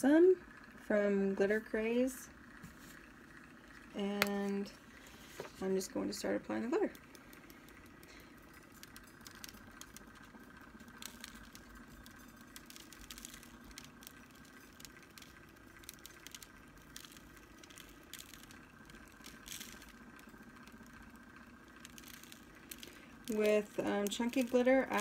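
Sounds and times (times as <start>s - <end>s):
faint hum: 0.0s - 25.0s.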